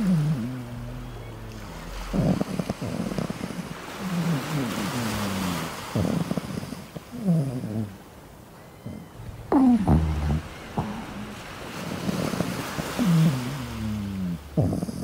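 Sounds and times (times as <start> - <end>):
puppy grunting and whining: 0.0 - 4.8, 8.8 - 15.0.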